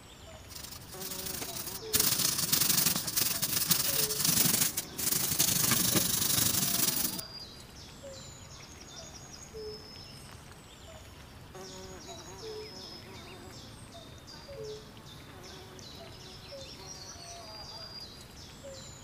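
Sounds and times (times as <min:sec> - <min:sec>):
quiet brushing: 0:00.4 - 0:07.2
wet scrubbing in soapy water: 0:00.5 - 0:07.2.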